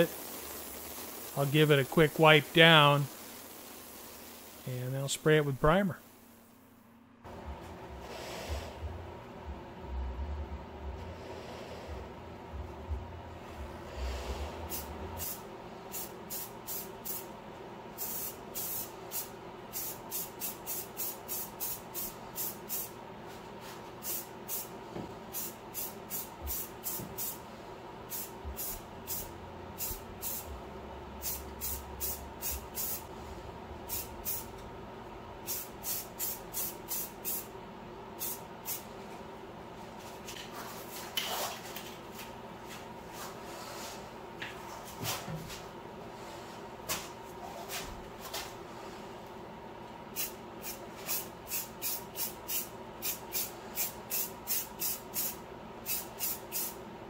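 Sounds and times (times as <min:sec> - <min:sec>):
compressed air bursts from blow gun: 0:00.0 - 0:04.6, 0:50.2 - 0:56.8
faint steady hum: 0:00.0 - 0:57.0.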